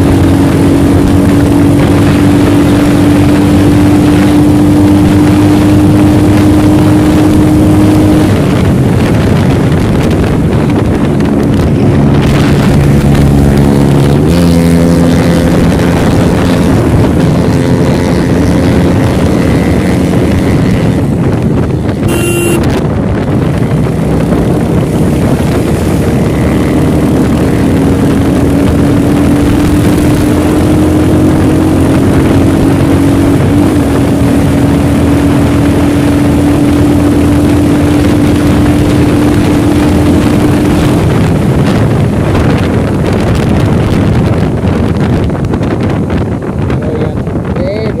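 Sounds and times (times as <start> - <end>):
motorcycle engine running: 0.0 - 48.0
wind rush on microphone: 0.0 - 48.0
brief beep: 22.1 - 22.7.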